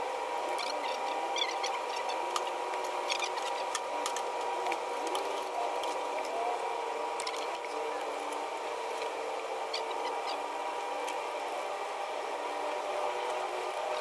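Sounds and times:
air conditioner humming: 0.0 - 14.0.

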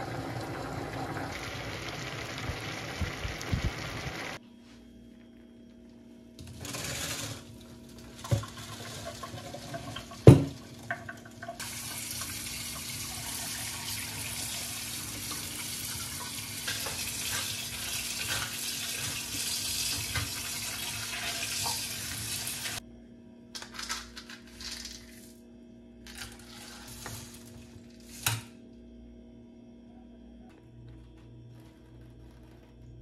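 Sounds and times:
tap water running into sink: 0.0 - 4.4, 8.2 - 22.8.

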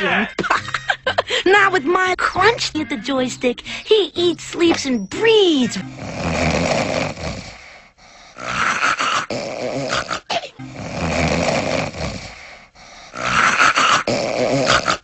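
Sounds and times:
cartoon snoring: 5.8 - 15.0.

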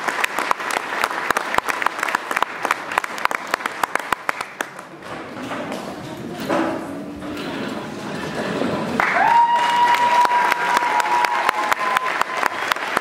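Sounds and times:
audience applauding: 0.0 - 4.9, 8.9 - 13.0.

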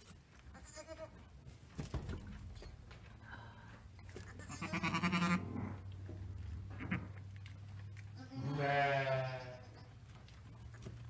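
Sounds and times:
sheep bleating: 0.6 - 1.2, 4.3 - 5.6, 8.2 - 9.7.

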